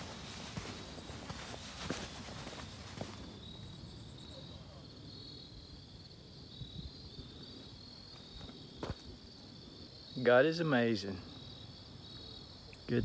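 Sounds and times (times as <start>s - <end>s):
footsteps on rock: 0.0s - 3.3s
insects chirping: 0.0s - 13.0s.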